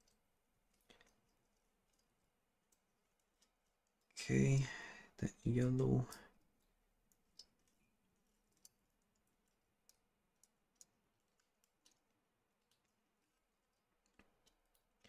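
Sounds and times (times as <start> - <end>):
faint small clicks: 0.0 - 4.1, 6.0 - 15.0.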